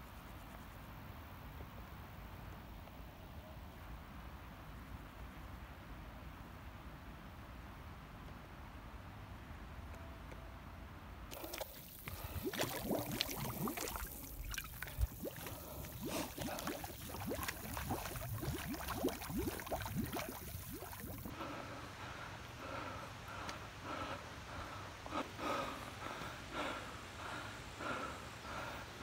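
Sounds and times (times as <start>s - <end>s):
person gulping: 11.3s - 21.3s
water gurgling in a bottle: 11.3s - 21.3s.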